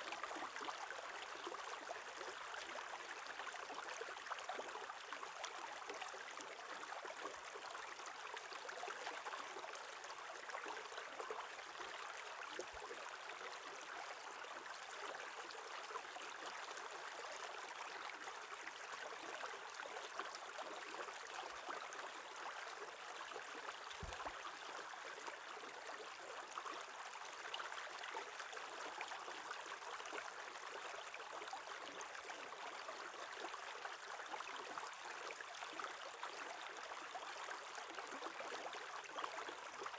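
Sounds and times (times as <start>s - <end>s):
stream flowing over stones: 0.0s - 39.9s.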